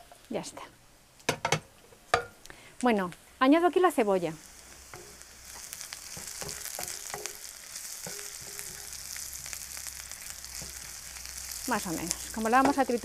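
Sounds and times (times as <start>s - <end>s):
onion sizzling in oil: 2.8s - 13.0s.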